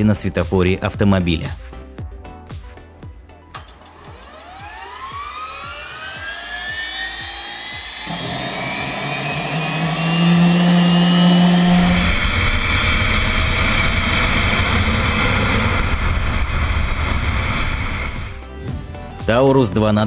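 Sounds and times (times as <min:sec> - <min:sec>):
gas turbine whine: 0:03.6 - 0:18.5
deep rumble: 0:08.0 - 0:18.4.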